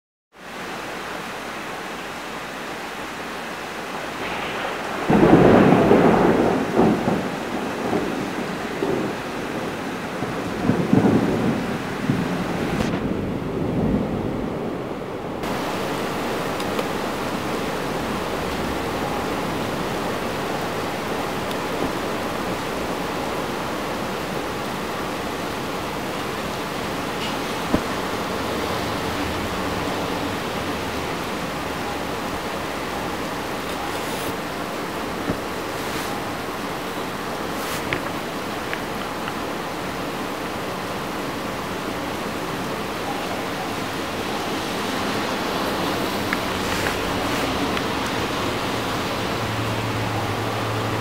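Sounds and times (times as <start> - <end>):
steady rain: 0.3 - 51.0
thunder rolling: 4.2 - 23.7.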